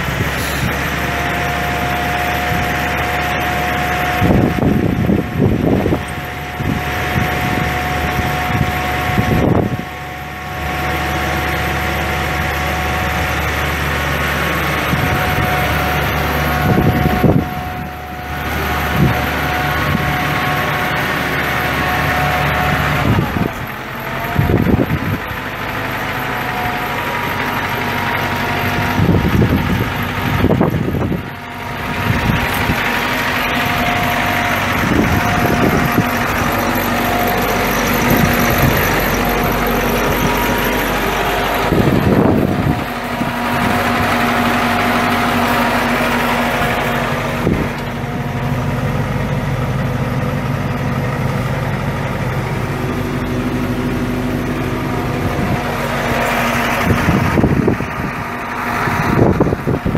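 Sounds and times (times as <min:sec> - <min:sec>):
diesel engine idling: 0:00.0 - 0:59.9
wind noise on microphone: 0:03.8 - 0:10.0, 0:16.5 - 0:18.0, 0:18.8 - 0:20.5, 0:24.2 - 0:25.3, 0:28.6 - 0:36.5, 0:37.8 - 0:39.2, 0:41.6 - 0:45.0, 0:47.4 - 0:47.8, 0:55.0 - 0:55.8, 0:56.4 - 0:59.9.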